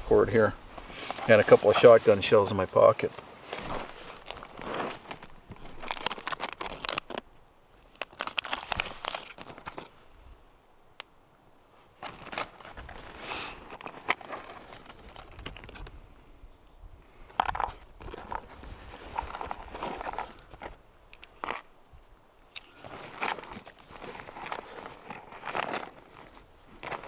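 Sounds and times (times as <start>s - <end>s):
rustling in a backpack: 0.1s - 7.2s, 8.0s - 10.1s, 11.8s - 16.1s, 17.2s - 20.8s, 22.4s - 27.0s
plastic packet crinkling: 4.0s - 7.2s, 7.9s - 9.9s, 17.4s - 20.8s, 22.7s - 27.0s.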